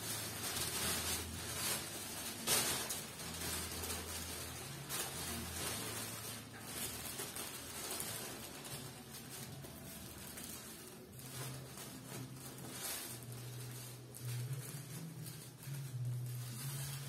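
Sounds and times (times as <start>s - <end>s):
tissue paper rustling: 0.0s - 17.0s.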